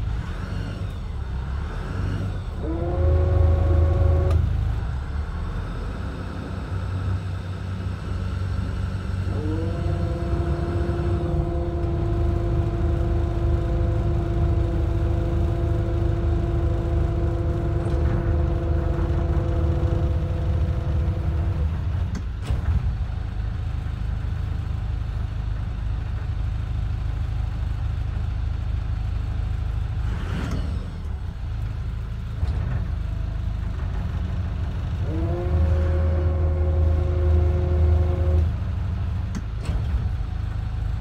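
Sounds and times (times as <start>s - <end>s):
boat engine low rumble: 0.0s - 41.0s
motor whine: 0.8s - 7.1s, 8.6s - 21.7s, 35.0s - 38.6s.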